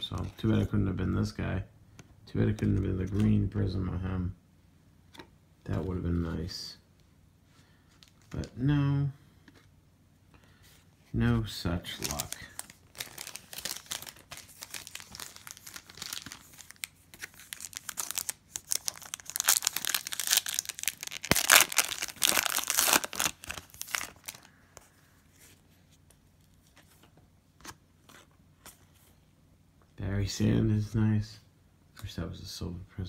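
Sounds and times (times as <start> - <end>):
foil pack tearing and crinkling: 12.0 - 24.5.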